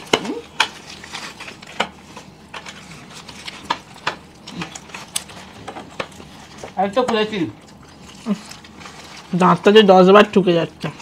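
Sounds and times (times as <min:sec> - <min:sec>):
chewing egg rolls: 0:00.0 - 0:11.0
paper wrappers crackling: 0:00.0 - 0:11.0.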